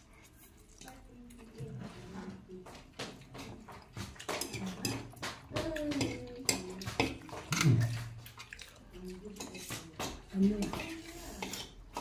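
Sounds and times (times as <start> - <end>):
chopsticks clicking on tray and bowl: 2.8 - 8.1
people slurping noodles: 3.8 - 12.0.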